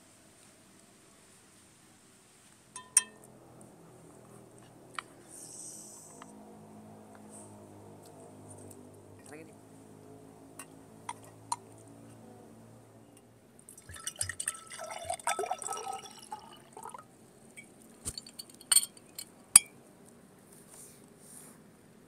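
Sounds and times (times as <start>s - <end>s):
glass clinks: 2.8s - 3.2s, 17.6s - 19.7s
liquid poured into glass: 13.7s - 17.0s.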